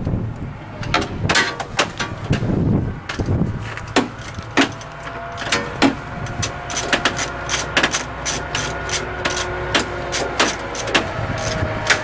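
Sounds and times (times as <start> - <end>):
steady low hum: 0.0 - 12.0
hand tools clicking on metal: 3.1 - 12.0.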